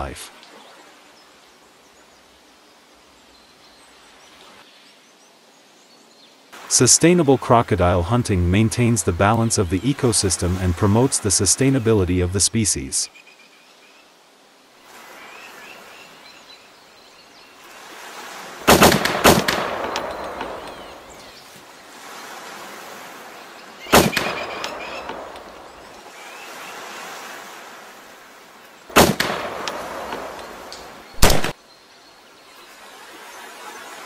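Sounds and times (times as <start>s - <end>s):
steady outdoor hiss: 0.0s - 34.0s
loud sharp bangs: 18.6s - 21.2s, 23.9s - 25.9s, 28.9s - 31.6s.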